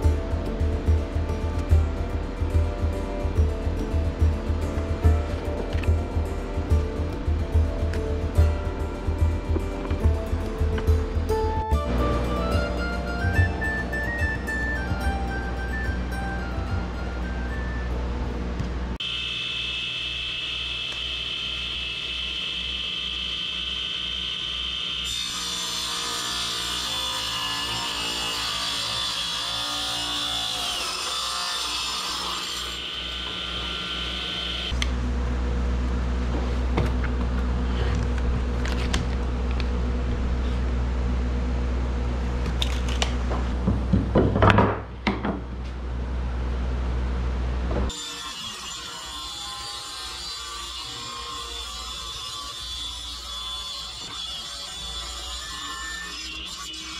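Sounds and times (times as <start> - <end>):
radial arm saw cutting wood: 19.0 - 34.8, 47.9 - 56.9.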